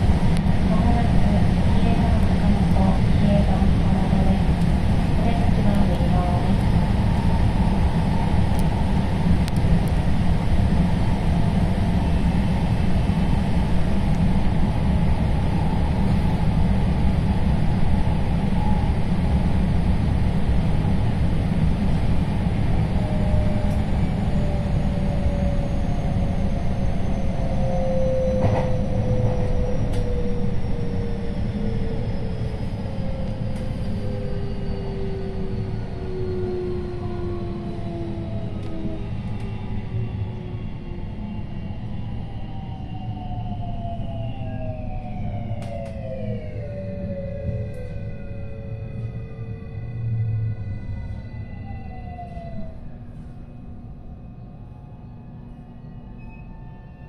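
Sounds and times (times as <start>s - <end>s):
train wheels rumbling on rails: 0.0s - 55.0s
train motor whine: 23.0s - 39.6s.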